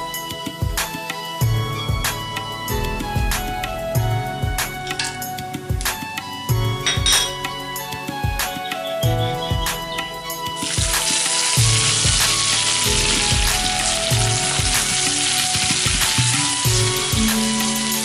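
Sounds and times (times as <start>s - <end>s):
onions sizzling in hot oil: 10.5s - 18.0s.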